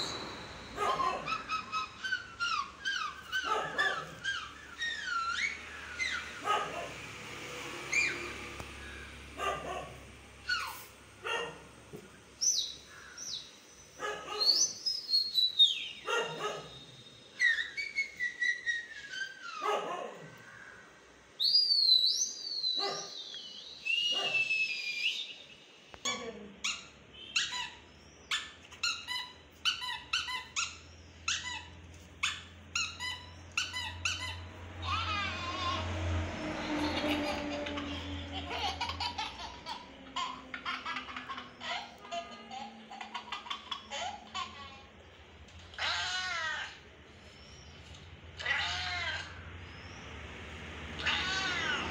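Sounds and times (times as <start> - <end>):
puppy yipping: 0.1 - 7.0, 17.4 - 20.2, 24.1 - 24.5, 26.6 - 35.8.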